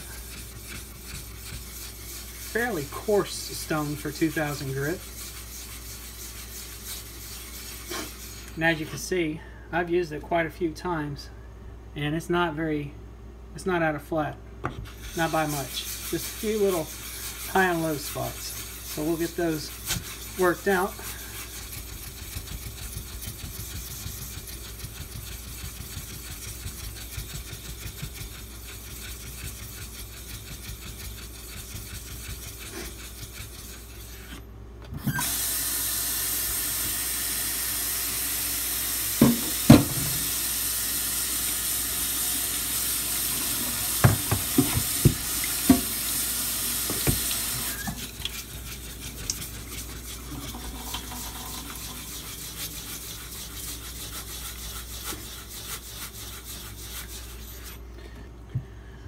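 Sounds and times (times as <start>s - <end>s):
water running from a tap: 35.2s - 52.2s.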